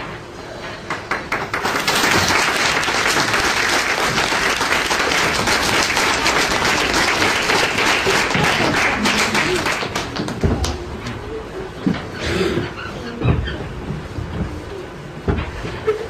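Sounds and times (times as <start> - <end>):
audience applauding: 0.8 - 10.9.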